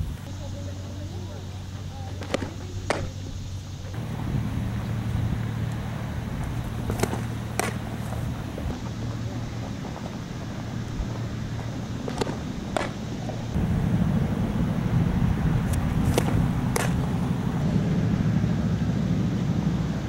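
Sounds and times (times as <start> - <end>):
ball smacking into mitt: 2.2 - 3.2, 4.0 - 8.9, 12.0 - 13.4, 15.6 - 17.6
softball pitch pop: 2.2 - 3.2, 3.9 - 9.0, 12.0 - 13.8, 15.2 - 17.6
low rumble: 10.9 - 20.0.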